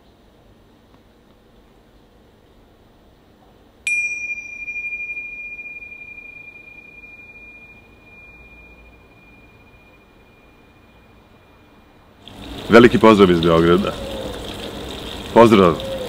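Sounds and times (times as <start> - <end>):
metal chime ringing: 3.9 - 12.2.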